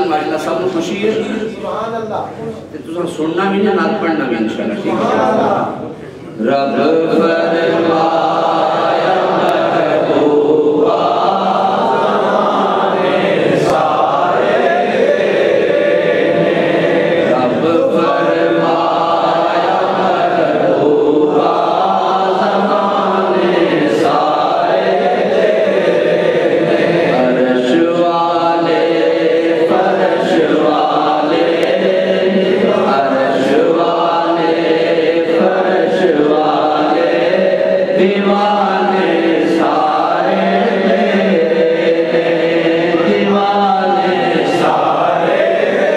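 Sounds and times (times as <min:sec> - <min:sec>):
man chanting through a microphone: 0:00.0 - 0:08.5, 0:17.2 - 0:21.4, 0:27.1 - 0:45.4.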